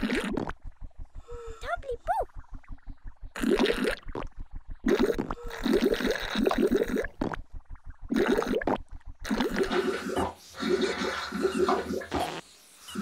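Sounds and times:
gurgling and slurping from bottle: 0:00.0 - 0:00.6, 0:04.9 - 0:07.4, 0:08.1 - 0:12.4
fast low pulse: 0:00.3 - 0:05.5.

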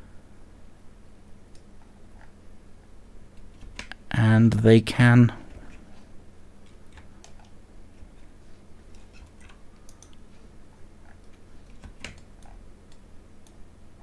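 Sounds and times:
low steady hum: 0:00.0 - 0:14.0
keyboard and mouse clicking: 0:08.9 - 0:10.2, 0:11.2 - 0:13.6.

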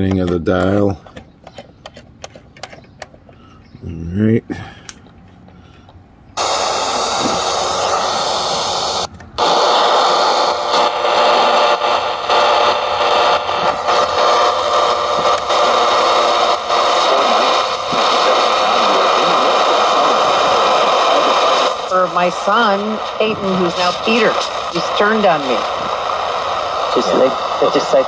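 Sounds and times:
radio static hiss: 0:06.4 - 0:28.0.

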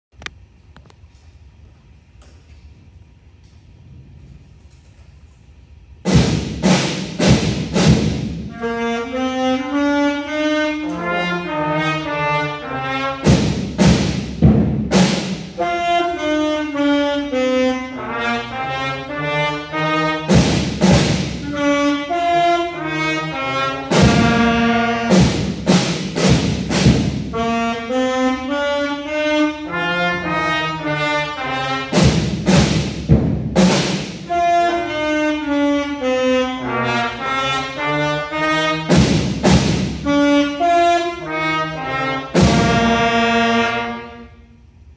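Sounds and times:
loud drum strikes: 0:06.0 - 0:08.7, 0:13.1 - 0:15.7, 0:20.2 - 0:21.8, 0:23.8 - 0:27.6, 0:31.7 - 0:34.4, 0:38.8 - 0:40.2, 0:42.2 - 0:43.2
trumpets and saxophones playing: 0:06.1 - 0:44.8.

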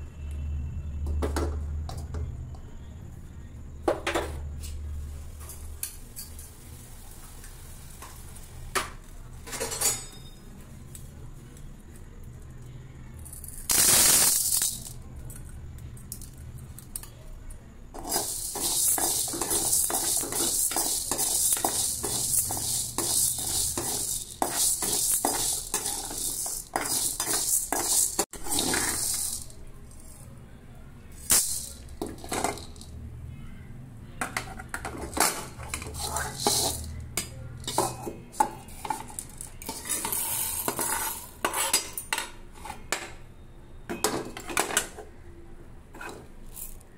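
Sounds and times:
dry lentils pouring into a pan: 0:18.0 - 0:29.6
metal ladle scraping a pan: 0:18.0 - 0:29.6, 0:34.3 - 0:43.1, 0:45.9 - 0:46.8.

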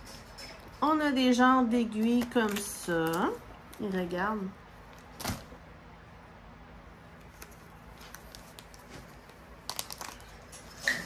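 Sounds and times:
plastic packaging crinkling: 0:01.9 - 0:04.0, 0:07.2 - 0:10.8.

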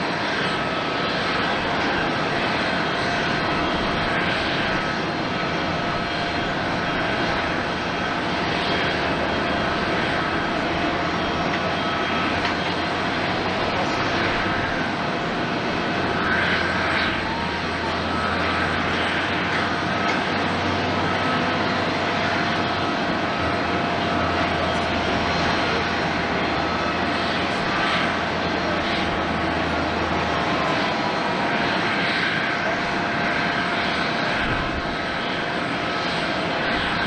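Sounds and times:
jet engines running: 0:00.0 - 0:37.0.

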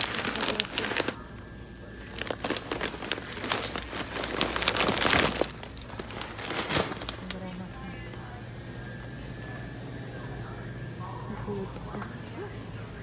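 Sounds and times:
crinkling and rustling: 0:00.0 - 0:01.2, 0:02.0 - 0:07.6.

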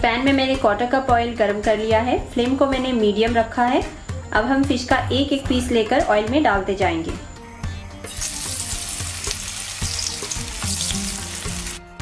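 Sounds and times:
soft background music: 0:00.0 - 0:12.0
fish sizzling in hot oil: 0:08.0 - 0:11.9.

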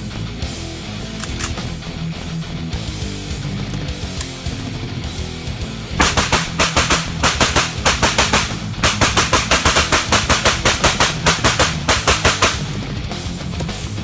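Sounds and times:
rapid pistol gunfire: 0:06.0 - 0:12.9.

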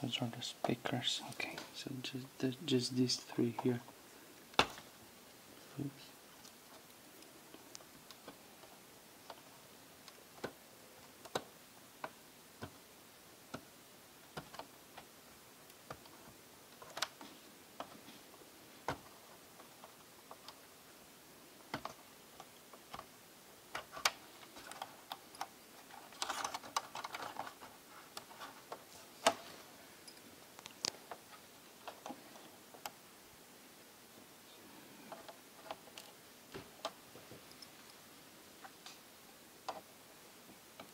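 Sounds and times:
plastic parts clicking: 0:15.7 - 0:18.0, 0:21.7 - 0:23.1, 0:23.7 - 0:29.4
rustling: 0:23.7 - 0:32.9.

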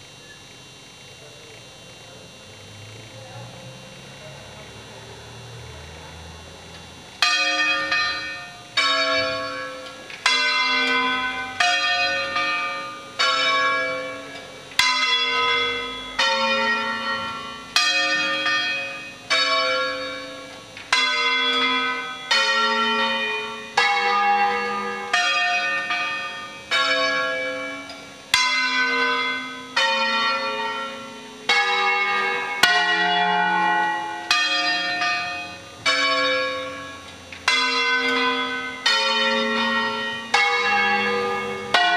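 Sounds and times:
church bells ringing: 0:06.5 - 0:41.9.

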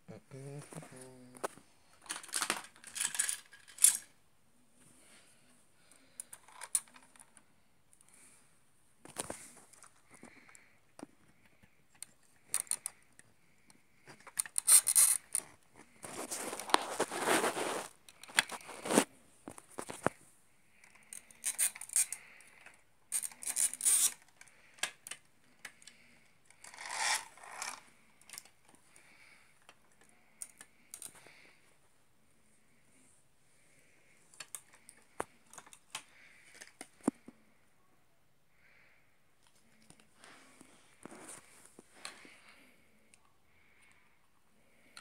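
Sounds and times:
plastic bricks clicking and scraping: 0:01.4 - 0:04.1, 0:06.2 - 0:07.4, 0:09.1 - 0:13.2, 0:14.0 - 0:20.1, 0:20.8 - 0:28.8, 0:34.3 - 0:37.1
rustling: 0:14.2 - 0:20.3.

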